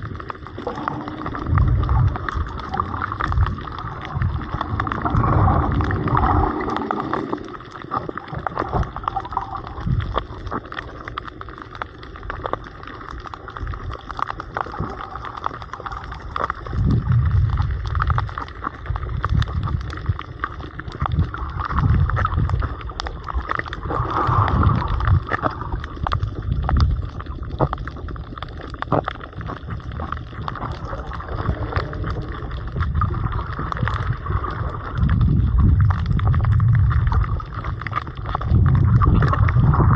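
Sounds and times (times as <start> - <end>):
deep rumble: 0.0 - 39.9
underwater gurgling water: 0.0 - 39.9.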